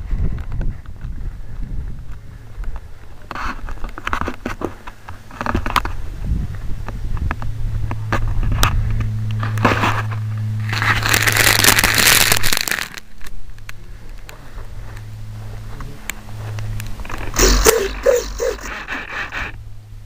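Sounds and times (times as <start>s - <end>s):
steady low hum: 0.0s - 20.0s
rustling scrape in grass: 8.2s - 13.0s.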